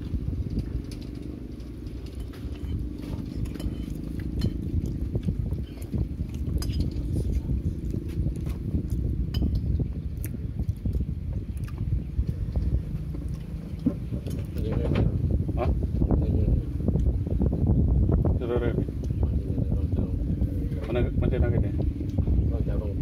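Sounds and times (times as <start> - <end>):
steady low rumble: 0.0 - 23.0
chewing and mouth noises: 0.4 - 14.6.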